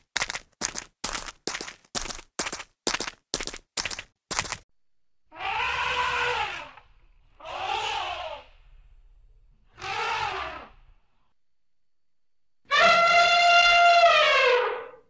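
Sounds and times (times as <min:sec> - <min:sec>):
elephant trumpeting: 0:05.3 - 0:06.8, 0:07.4 - 0:08.5, 0:09.8 - 0:10.8, 0:12.7 - 0:15.0.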